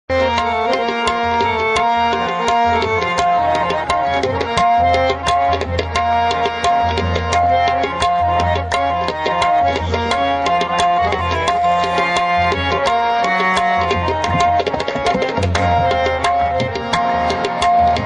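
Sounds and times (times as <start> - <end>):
harmoniums sustained notes: 0.1 - 18.0
hand drum strokes: 10.7 - 18.0.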